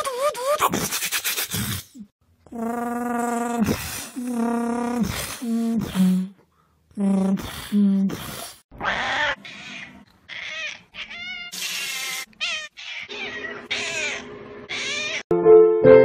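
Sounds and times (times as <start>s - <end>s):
cats meowing and yowling: 8.8s - 15.3s.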